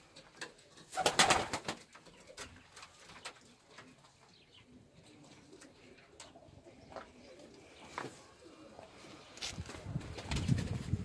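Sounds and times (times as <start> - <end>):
pigeons cooing: 4.5 - 11.0.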